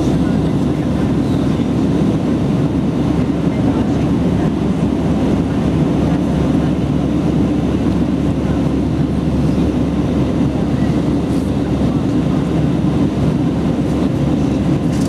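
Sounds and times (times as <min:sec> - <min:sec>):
airplane cabin engine drone: 0:00.0 - 0:15.0.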